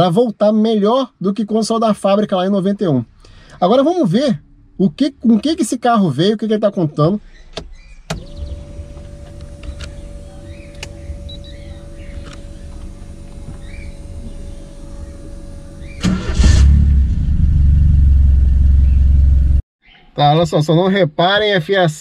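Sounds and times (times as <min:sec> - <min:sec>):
car engine cranking and running: 0:07.3 - 0:19.6
low steady hum: 0:08.1 - 0:19.6
faint steady whine: 0:08.2 - 0:16.4.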